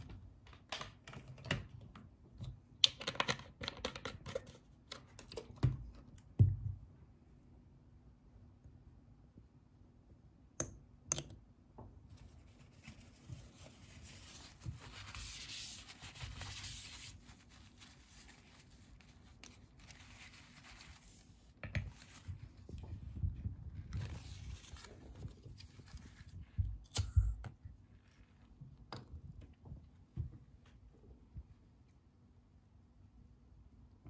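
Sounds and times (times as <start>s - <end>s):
scratchy rustle of cotton and metal: 12.1s - 26.5s.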